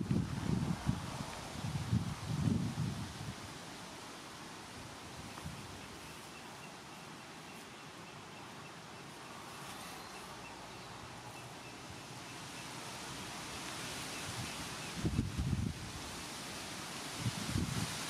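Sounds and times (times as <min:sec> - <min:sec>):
wind over the sea: 0:00.0 - 0:03.7, 0:14.1 - 0:18.0.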